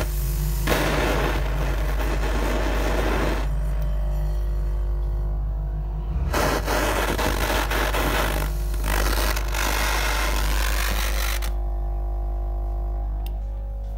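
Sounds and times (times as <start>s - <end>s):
soldering torch hissing: 0.0s - 3.5s, 6.3s - 11.6s
low electrical hum: 0.0s - 13.9s.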